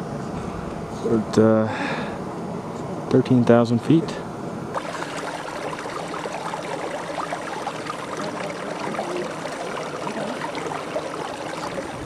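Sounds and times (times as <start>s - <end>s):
stream running over rocks: 4.8s - 12.0s.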